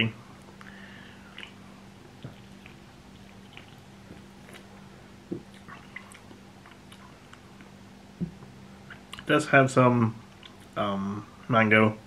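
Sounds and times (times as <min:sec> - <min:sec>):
faint low hum: 0:00.0 - 0:12.0
mouth and lip clicks: 0:01.3 - 0:01.6.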